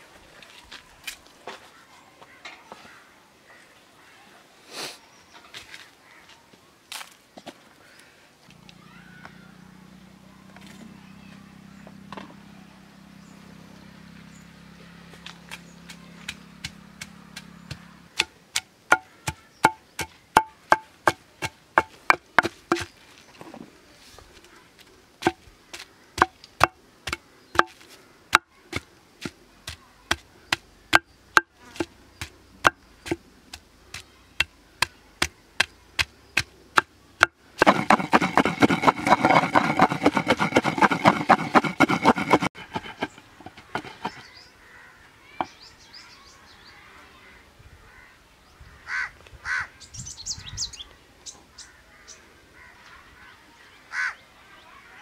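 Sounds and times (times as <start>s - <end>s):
pestle pounding in stone mortar: 16.2s - 22.9s, 25.2s - 44.3s.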